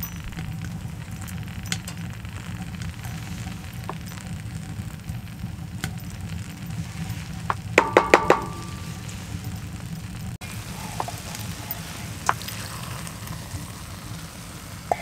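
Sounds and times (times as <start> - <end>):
food sizzling in a skillet: 0.0 - 15.0
wooden spoon stirring: 0.0 - 15.0
spoon tapping against pan: 7.8 - 8.7.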